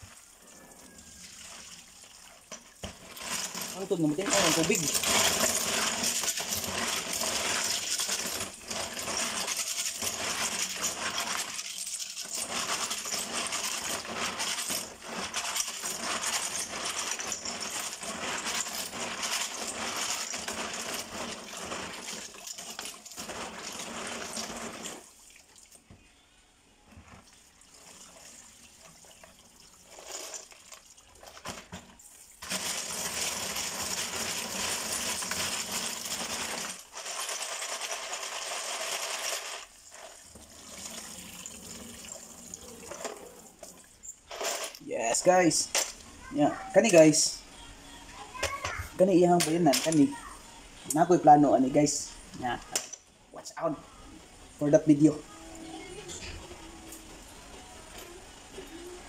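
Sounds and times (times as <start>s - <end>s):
running tap water: 0.0s - 25.9s, 27.2s - 37.0s, 37.6s - 44.1s.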